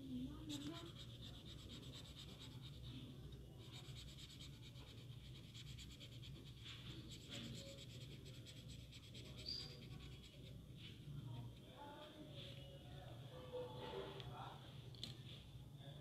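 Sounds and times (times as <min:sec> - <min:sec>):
pen scratching on paper: 0:00.4 - 0:03.0, 0:03.6 - 0:11.0.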